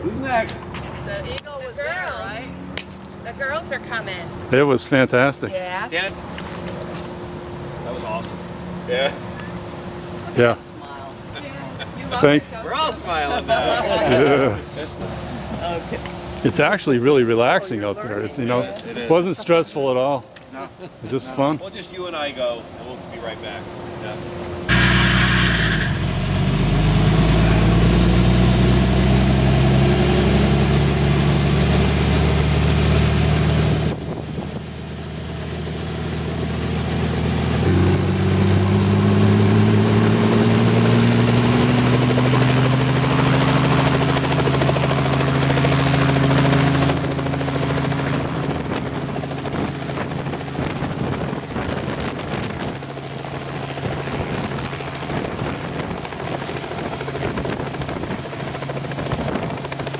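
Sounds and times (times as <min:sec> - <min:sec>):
helicopter engine and rotor: 0:40.0 - 0:59.9.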